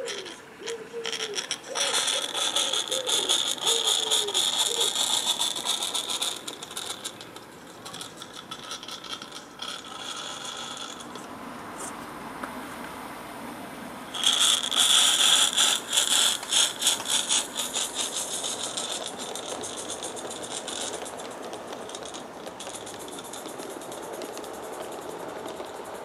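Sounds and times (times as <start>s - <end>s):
pigeon cooing: 0.0s - 7.3s
steam locomotive clattering: 0.0s - 11.3s, 14.1s - 26.0s.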